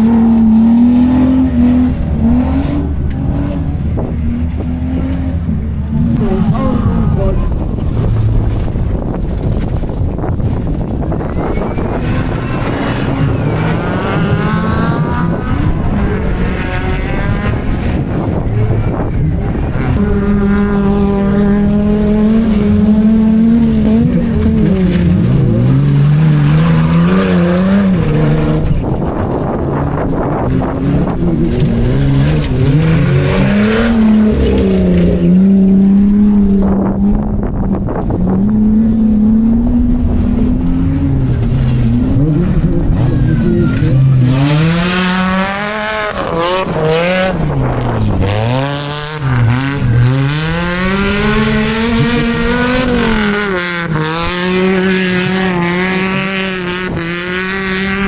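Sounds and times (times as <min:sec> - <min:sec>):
off-road engines revving: 0:00.0 - 0:58.0.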